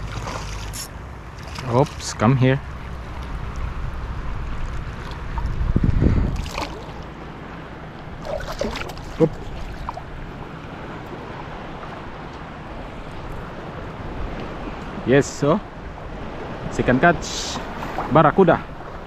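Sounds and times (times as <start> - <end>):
water splashes and knocks: 0.0 - 7.2, 8.1 - 12.5
shallow sea water: 0.0 - 19.0
wind buffeting microphone: 1.2 - 7.3.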